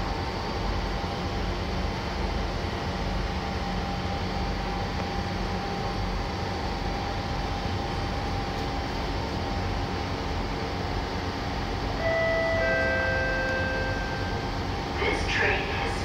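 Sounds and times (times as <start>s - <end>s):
train equipment hum and whir: 0.0s - 16.0s
thin high tone: 12.0s - 15.0s.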